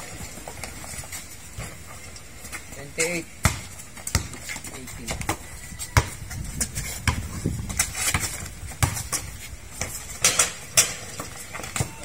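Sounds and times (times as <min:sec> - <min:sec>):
players' footsteps: 0:00.0 - 0:12.0
basketball dribbling on concrete: 0:02.4 - 0:12.0.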